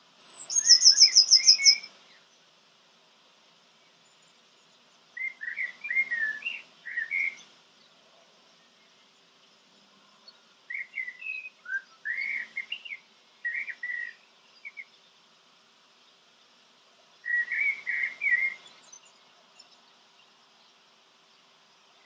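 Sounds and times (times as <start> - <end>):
songbird whistling: 0.1 - 1.9, 5.2 - 7.4, 10.7 - 14.9, 17.2 - 19.1.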